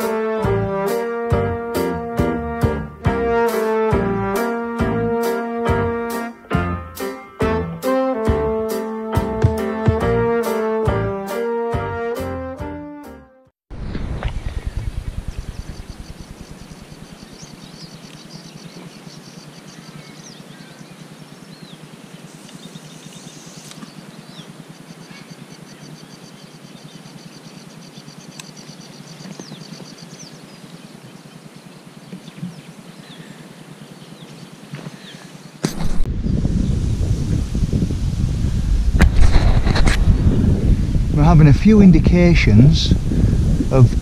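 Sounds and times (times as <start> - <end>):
steady outdoor hiss: 0.0 - 9.8, 13.7 - 44.0
wind buffeting microphone: 13.7 - 18.2, 35.7 - 44.0
small birds chirping: 14.2 - 35.6.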